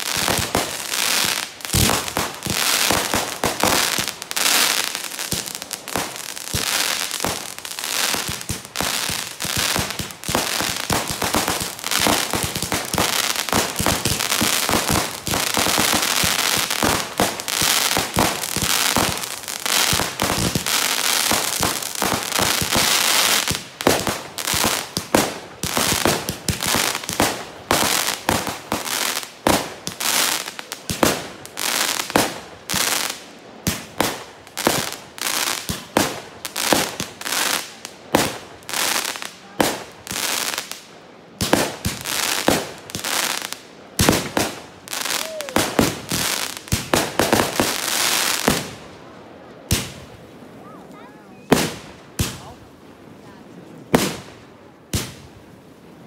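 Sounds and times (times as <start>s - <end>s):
fireworks sharp bangs: 0.0s - 28.9s
fireworks crackling: 0.0s - 55.4s.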